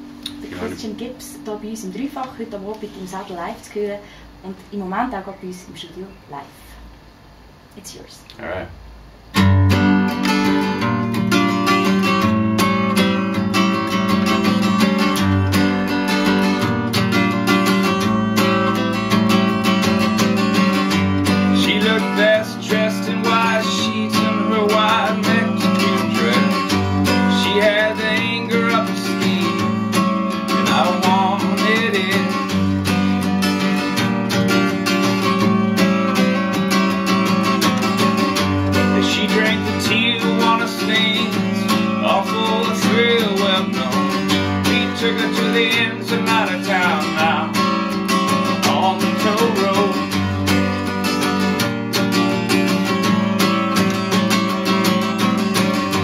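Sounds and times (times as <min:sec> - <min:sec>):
acoustic guitar strumming: 0:00.0 - 0:04.4, 0:09.2 - 0:56.0
man singing: 0:21.5 - 0:32.7, 0:38.8 - 0:47.8, 0:48.4 - 0:50.4.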